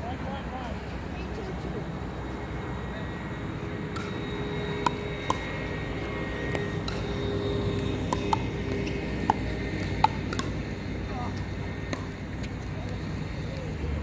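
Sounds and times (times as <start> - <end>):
steady engine drone: 0.0 - 14.0
paddles hitting plastic ball: 4.8 - 10.8.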